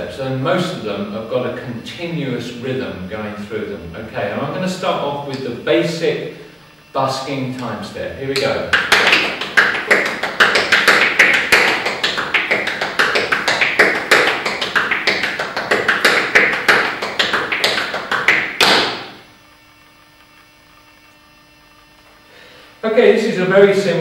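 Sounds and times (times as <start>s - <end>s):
faint hum: 0.0s - 24.0s
tap shoes tapping on hard floor: 8.7s - 19.1s.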